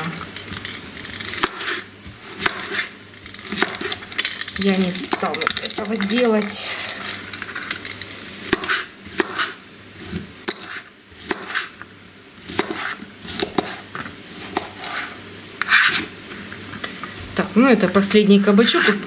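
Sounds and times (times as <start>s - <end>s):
knife chopping on plastic board: 2.4s - 2.9s, 8.5s - 9.6s, 10.4s - 11.7s, 12.5s - 13.8s, 14.5s - 15.1s.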